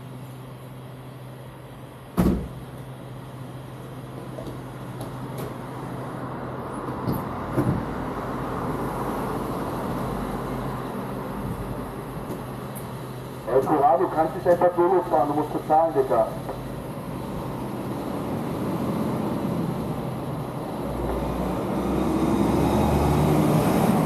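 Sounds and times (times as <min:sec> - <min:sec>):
knocks at petrol pump: 0:02.2 - 0:02.6.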